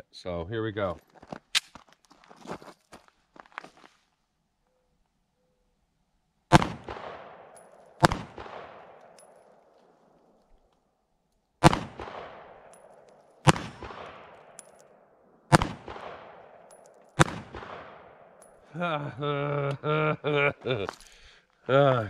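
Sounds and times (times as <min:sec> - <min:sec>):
pistol shots with echo: 0:06.5 - 0:09.5, 0:11.6 - 0:18.5.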